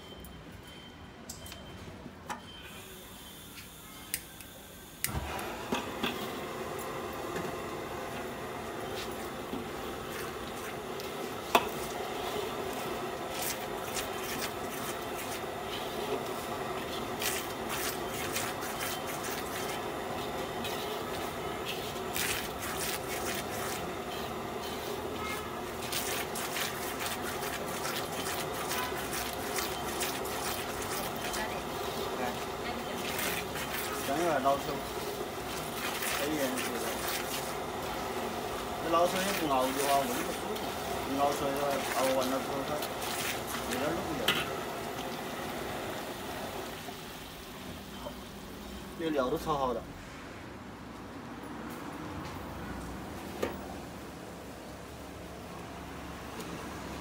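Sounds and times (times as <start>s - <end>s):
steady sizzle: 2.7s - 49.8s
metal ladle scraping wok: 10.1s - 44.7s.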